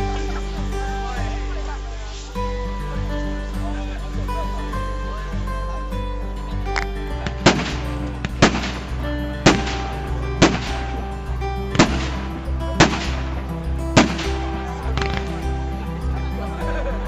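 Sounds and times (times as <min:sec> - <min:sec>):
background music: 0:00.0 - 0:17.0
fireworks bangs: 0:07.2 - 0:11.0, 0:11.7 - 0:13.4, 0:14.0 - 0:15.4.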